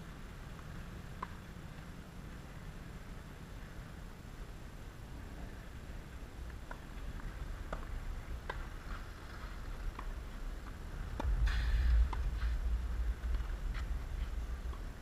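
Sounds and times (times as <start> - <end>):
low rumble with scuffing: 6.0 - 15.0.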